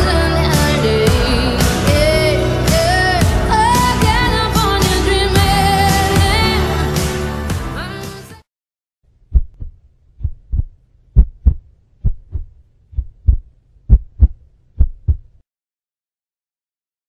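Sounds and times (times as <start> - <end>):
heartbeat thuds: 9.3 - 15.4.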